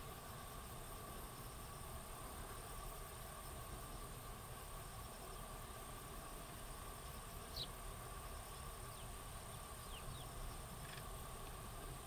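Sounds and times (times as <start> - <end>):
sparrows chirping: 7.0 - 11.2.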